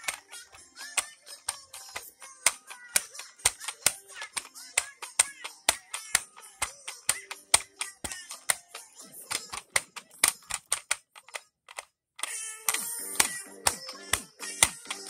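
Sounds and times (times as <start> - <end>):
plastic toy clicking and knocking: 0.0 - 15.0.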